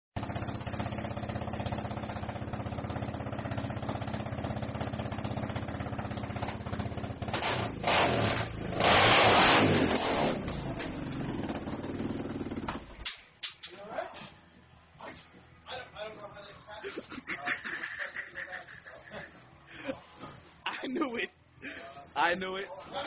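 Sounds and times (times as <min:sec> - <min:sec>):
quad bike engine idling and revving: 0:00.2 - 0:13.0.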